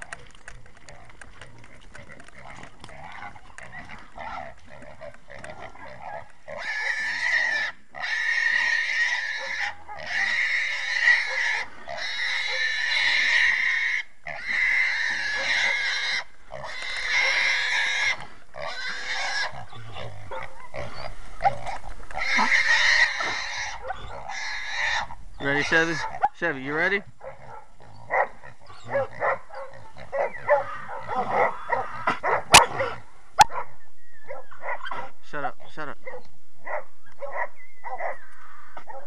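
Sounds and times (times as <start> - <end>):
hog squealing: 5.9 - 26.3.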